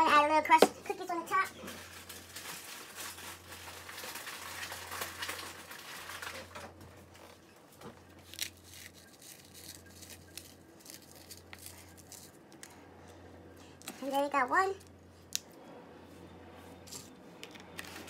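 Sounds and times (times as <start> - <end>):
cookie pieces rustling: 1.6 - 6.8, 8.1 - 12.8.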